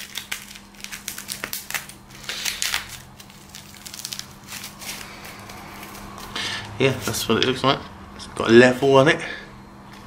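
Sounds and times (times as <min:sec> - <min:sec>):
plastic wrapping crinkling: 0:00.0 - 0:07.2.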